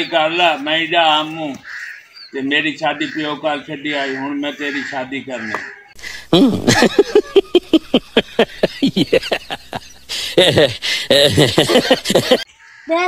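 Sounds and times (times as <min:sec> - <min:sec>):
person laughing rapidly: 0:06.0 - 0:12.5.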